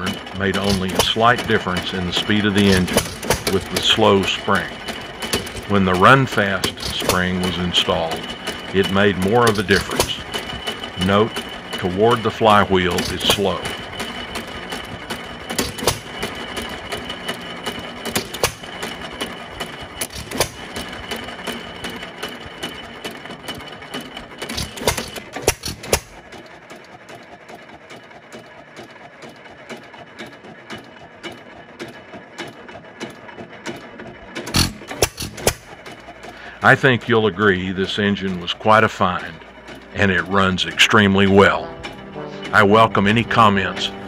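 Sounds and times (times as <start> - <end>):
valve gear clicking: 0.0 - 21.6, 24.4 - 26.3, 34.4 - 37.2.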